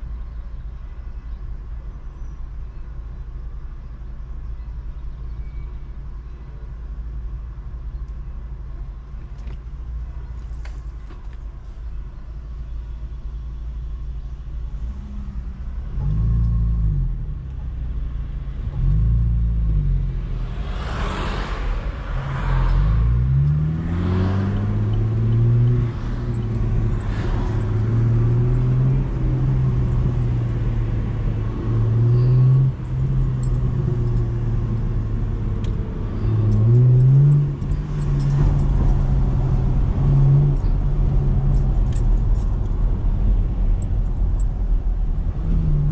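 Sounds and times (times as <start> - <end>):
car engine idling and revving: 0.0 - 45.9
car pulling away: 18.5 - 45.9.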